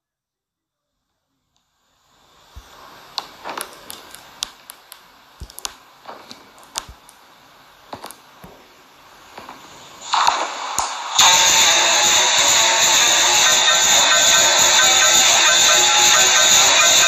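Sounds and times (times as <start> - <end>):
low steady hiss: 0.0 - 11.5
sharp clicks and taps: 3.2 - 7.2, 7.9 - 8.6.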